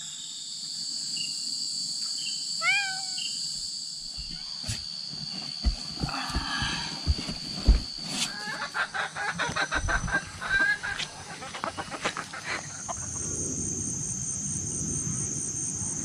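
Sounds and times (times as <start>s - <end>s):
high insect drone: 0.0s - 16.0s
chickens and roosters clucking: 8.3s - 13.3s.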